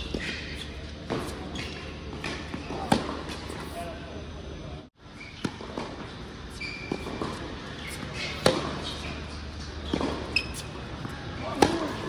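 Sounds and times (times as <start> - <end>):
tennis ball struck by rackets: 2.2 - 3.4, 6.9 - 9.0, 11.5 - 12.0
ball bouncing on hard court: 6.9 - 9.0, 9.9 - 12.0.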